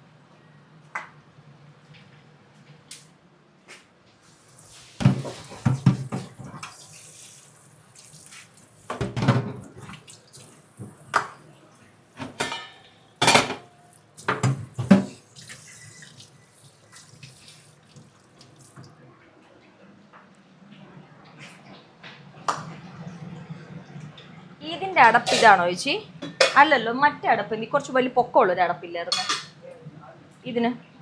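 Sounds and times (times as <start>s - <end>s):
tap water running into sink: 5.0s - 11.4s
utensils clattering: 12.2s - 15.9s, 29.1s - 29.6s.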